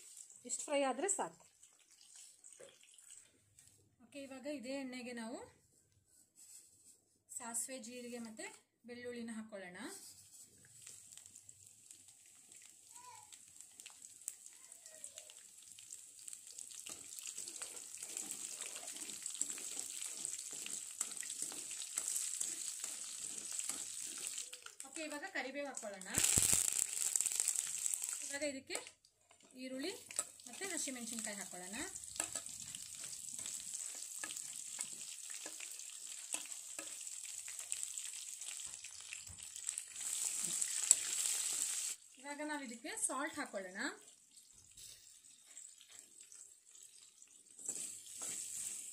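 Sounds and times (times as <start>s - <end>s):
garlic and seeds sizzling in oil: 0.0s - 5.2s, 6.4s - 48.9s
crackles and pops in oil: 25.9s - 29.0s.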